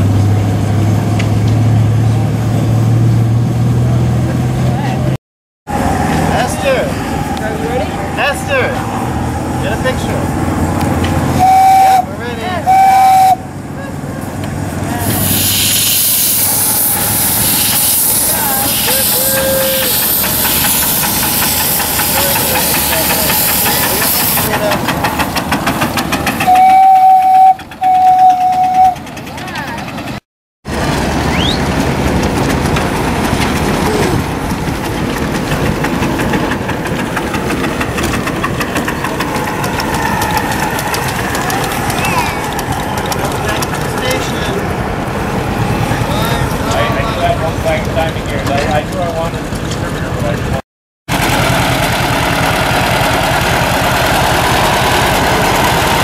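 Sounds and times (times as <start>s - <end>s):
steam whistle blasts: 11.4s - 12.1s, 12.7s - 13.4s, 15.3s - 23.5s, 26.4s - 29.0s
old engine chugging: 14.8s - 56.0s
steam hissing: 14.9s - 27.5s.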